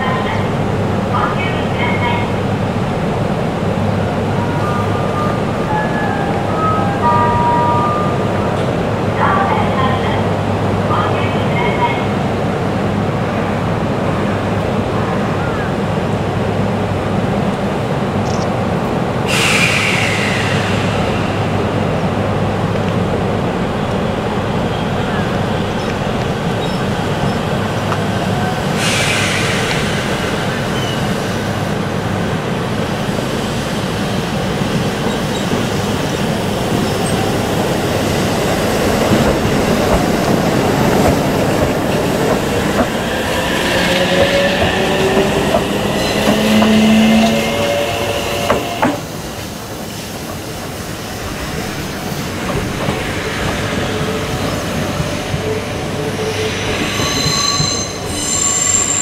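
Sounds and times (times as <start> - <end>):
electric train rumbling: 0.0 - 59.0
train wheel squeal: 19.3 - 22.1, 26.5 - 27.5, 28.4 - 31.4, 34.9 - 37.4, 39.7 - 49.2, 52.1 - 59.0.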